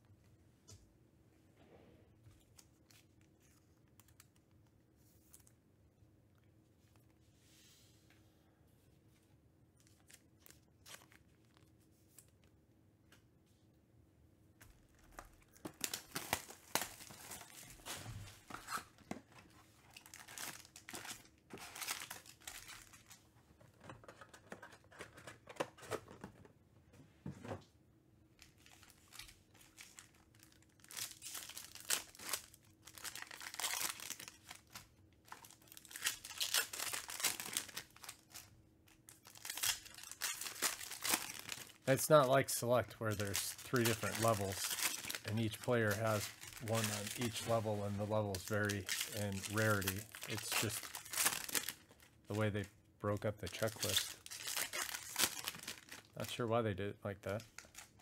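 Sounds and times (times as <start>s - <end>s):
foil packs crinkling: 15.0s - 23.2s, 28.4s - 52.5s, 53.2s - 56.2s, 57.3s - 58.0s.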